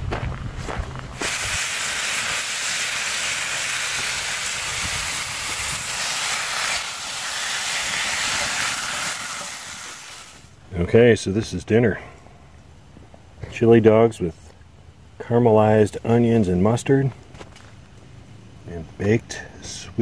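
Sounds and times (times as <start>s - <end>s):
food sizzling in a skillet: 1.2s - 10.5s.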